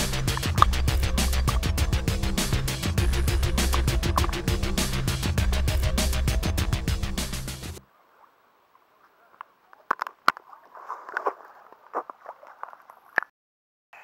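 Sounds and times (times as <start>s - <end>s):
electronic background music: 0.0s - 7.8s
sharp clicks and crackles: 0.2s - 0.8s, 9.3s - 13.3s
muffled underwater water sound: 3.7s - 4.6s.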